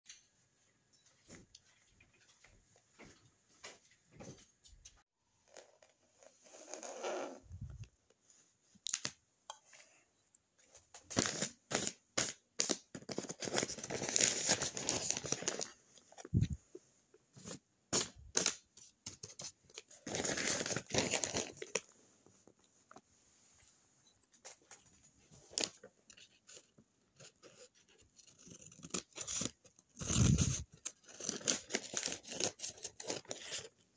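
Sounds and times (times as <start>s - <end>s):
paper bag crinkling: 30.0s - 33.6s.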